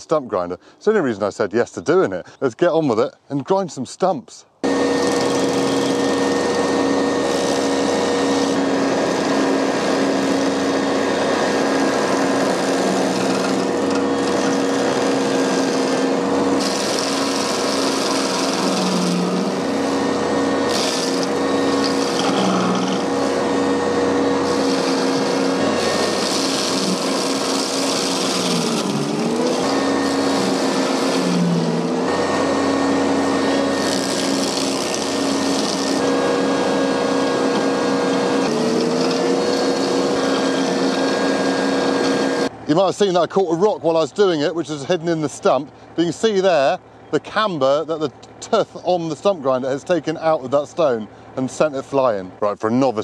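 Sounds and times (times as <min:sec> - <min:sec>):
stump grinder grinding wood: 0:04.6 - 0:42.6
engine running under load: 0:04.6 - 0:52.5.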